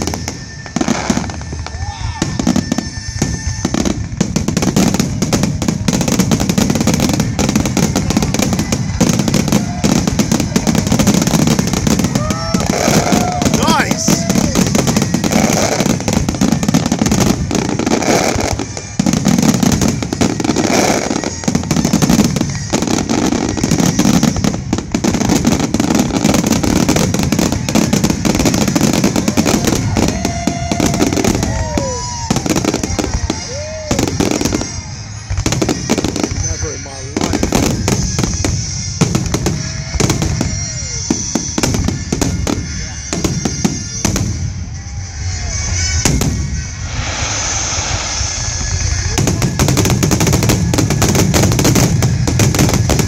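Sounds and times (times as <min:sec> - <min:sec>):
fireworks shell bursts and crackle: 0:00.0 - 0:53.0.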